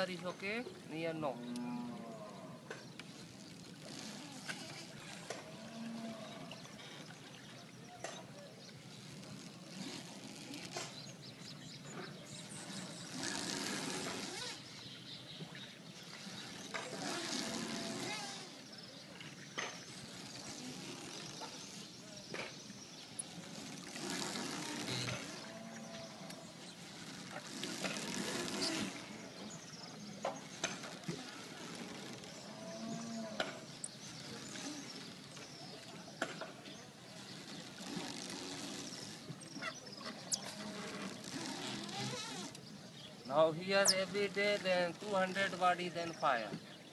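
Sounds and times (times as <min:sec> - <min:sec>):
oars splashing in water: 0:00.0 - 0:46.9.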